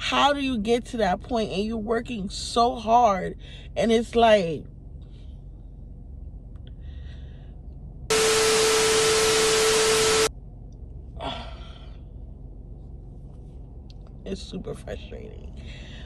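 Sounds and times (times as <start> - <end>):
static hiss burst with hum: 8.1 - 10.3.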